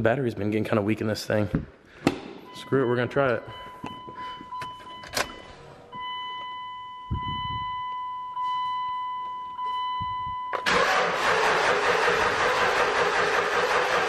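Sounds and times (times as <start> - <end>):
dashboard warning chime: 2.4 - 10.7.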